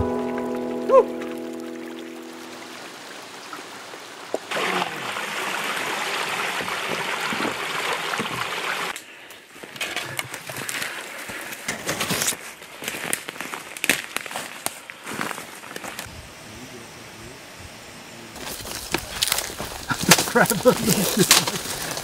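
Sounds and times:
brook water rushing: 0.0s - 8.9s
branches and leaves rustling: 0.0s - 16.4s, 18.4s - 22.0s
footsteps: 18.4s - 22.0s.

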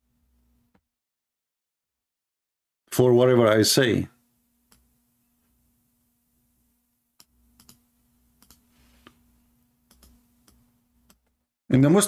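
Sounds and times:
faint steady hum: 0.0s - 0.8s, 2.9s - 12.0s
keyboard and mouse clicks: 7.2s - 7.8s, 8.4s - 8.6s, 9.9s - 11.4s.

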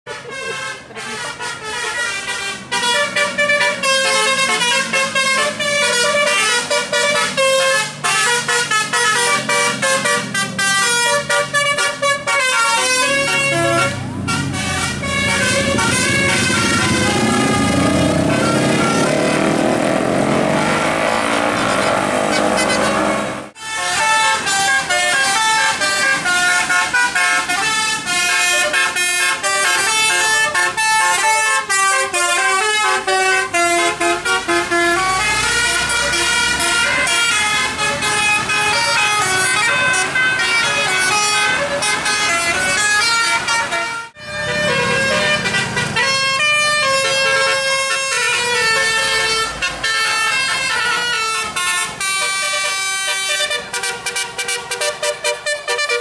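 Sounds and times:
bus horn gliding in pitch: 0.0s - 56.0s
musical bus horn melody: 0.0s - 56.0s
passing bus engine: 0.1s - 56.0s.

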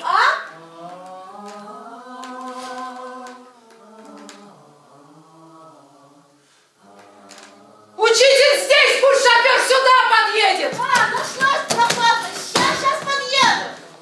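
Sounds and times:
choir singing long held notes: 0.4s - 9.6s.

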